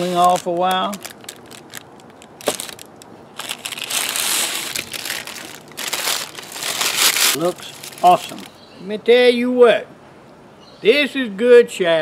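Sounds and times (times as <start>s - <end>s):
parchment paper crinkling: 0.0s - 8.6s.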